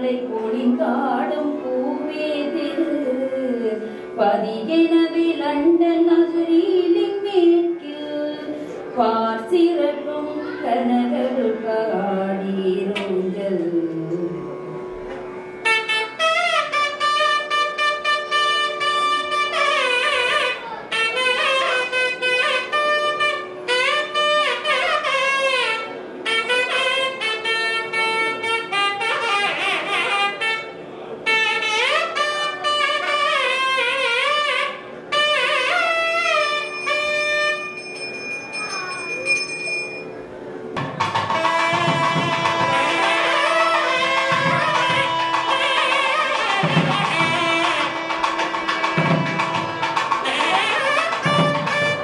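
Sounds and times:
wind instrument melody: 14.2s - 52.0s.

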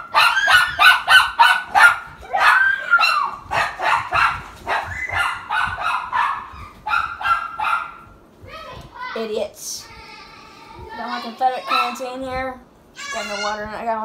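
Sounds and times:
small dog yapping: 0.0s - 8.0s.

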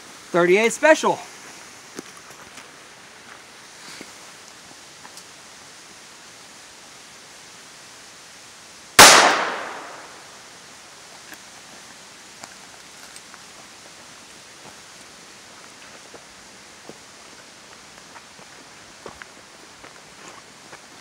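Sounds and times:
handgun shot with echo: 9.0s - 10.2s.

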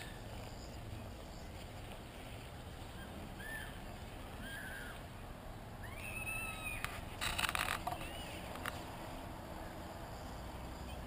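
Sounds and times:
high animal calls: 5.8s - 8.4s.

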